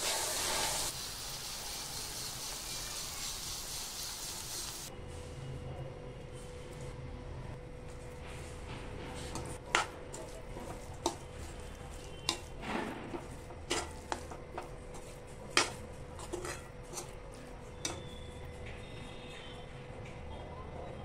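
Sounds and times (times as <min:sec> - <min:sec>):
metal spatula scraping a pan: 0:09.1 - 0:19.5.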